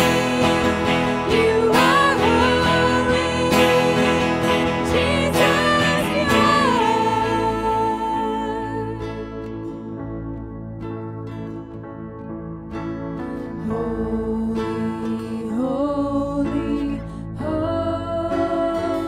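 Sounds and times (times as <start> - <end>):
women singing worship song: 0.0 - 9.0, 13.6 - 19.0
electric guitar: 0.0 - 19.0
keyboard: 0.0 - 19.0.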